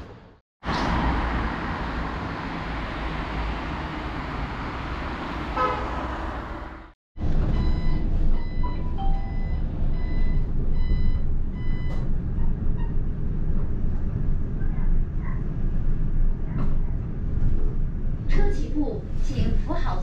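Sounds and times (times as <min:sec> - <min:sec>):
vehicle and road rumble: 0:00.0 - 0:19.8
electronic warning beeps: 0:07.5 - 0:12.0.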